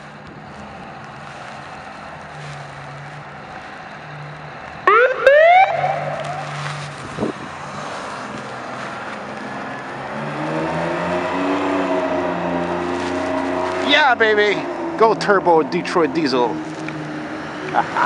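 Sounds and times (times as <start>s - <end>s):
siren chirps and wail: 4.8s - 6.8s.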